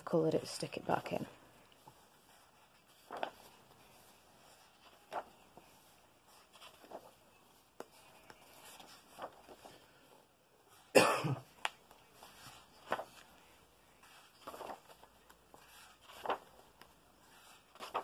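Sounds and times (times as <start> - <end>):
paper pages turning: 0.4 - 18.0
person coughing: 10.9 - 11.6.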